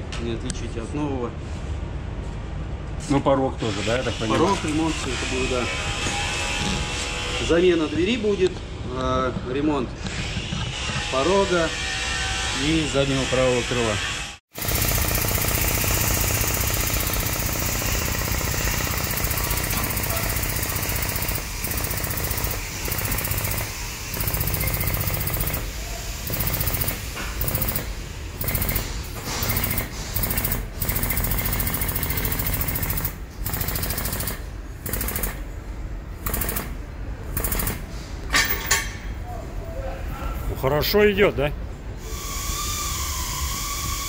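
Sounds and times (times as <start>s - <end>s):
power tool hammering: 14.5s - 35.4s, 36.2s - 36.8s.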